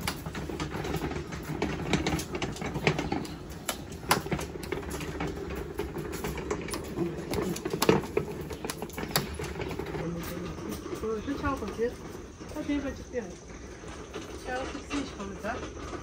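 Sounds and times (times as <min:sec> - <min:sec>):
metal prayer wheels clacking: 0:00.0 - 0:16.0.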